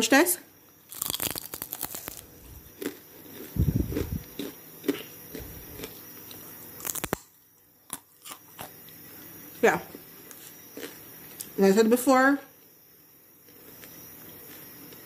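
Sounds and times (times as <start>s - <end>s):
crisp chip crunching: 0.9s - 6.0s, 6.8s - 7.3s
person chewing: 0.9s - 7.3s, 7.9s - 8.8s, 10.3s - 11.5s.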